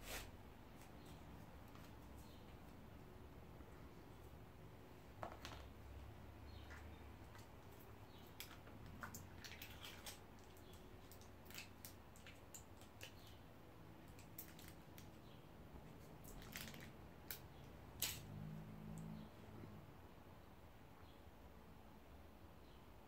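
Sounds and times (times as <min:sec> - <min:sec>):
food packaging rustling and clicking: 0:16.1 - 0:17.4.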